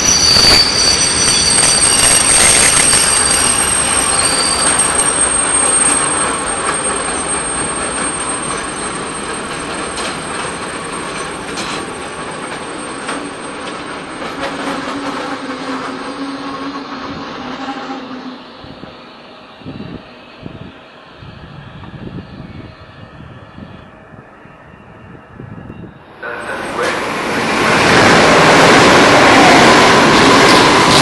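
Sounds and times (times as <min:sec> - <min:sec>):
train wheels squealing: 0:00.0 - 0:27.0, 0:28.6 - 0:31.0
wheels clicking over rail joints: 0:06.5 - 0:16.0.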